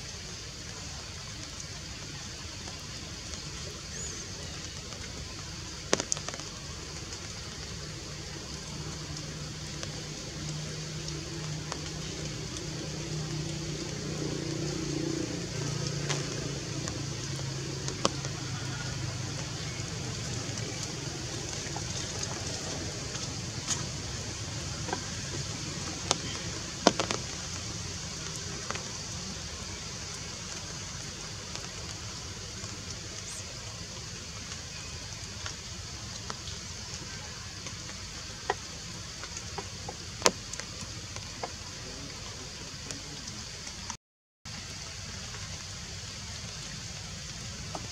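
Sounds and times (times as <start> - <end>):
outdoor background hiss: 0.0 - 47.9.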